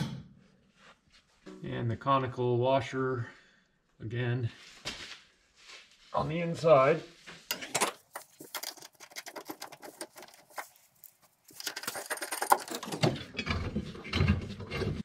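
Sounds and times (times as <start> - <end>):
metal hardware clicking and rattling: 7.5 - 13.6.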